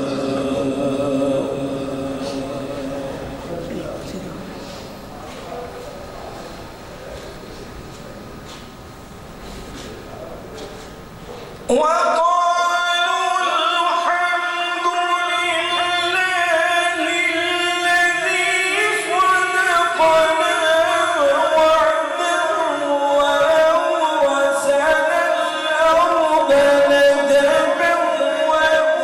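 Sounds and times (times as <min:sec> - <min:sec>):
person reciting melodically: 0:00.0 - 0:04.9, 0:11.7 - 0:29.0.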